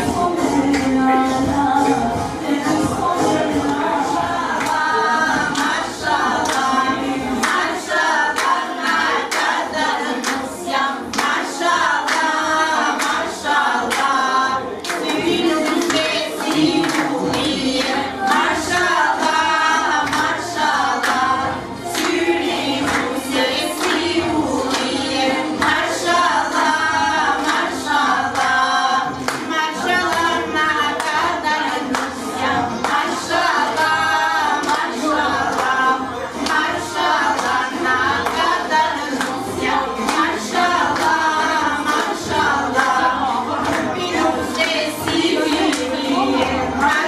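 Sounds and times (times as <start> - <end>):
group of voices singing: 0.0 - 47.0
hand clapping: 4.6 - 4.9, 5.5 - 6.8, 7.4 - 12.4, 13.0 - 14.2, 14.8 - 21.3, 21.9 - 26.7, 27.4 - 28.6, 29.2 - 39.4, 40.0 - 47.0.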